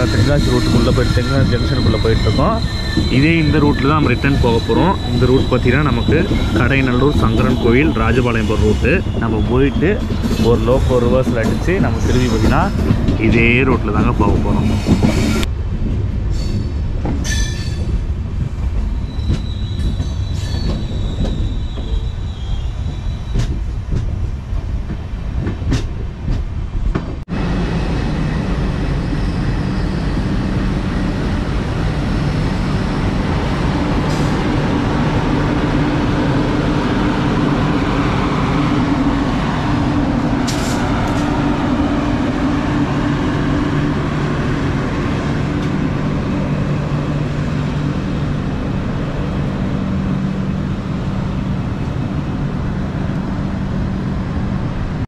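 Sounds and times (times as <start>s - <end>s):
faint wheel squeal: 0.0s - 10.9s, 19.0s - 23.5s
train wheels clicking on rails: 8.6s - 22.2s, 22.8s - 27.2s, 30.3s - 52.0s.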